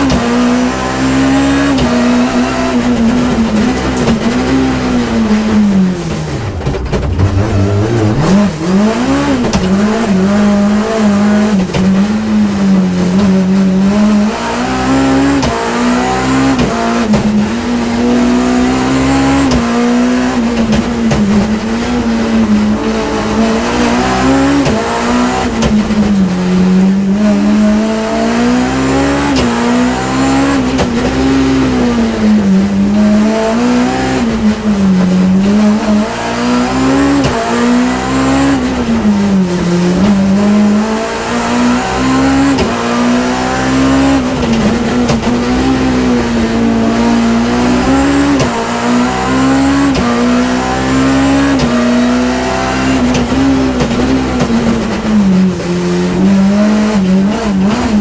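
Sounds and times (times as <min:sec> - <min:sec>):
car engine at high revs: 0:00.0 - 0:58.0.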